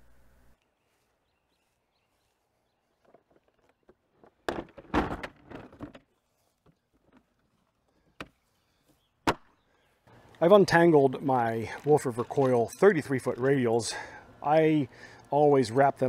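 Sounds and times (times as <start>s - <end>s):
workbench legs clattering into place: 4.4s - 6.0s.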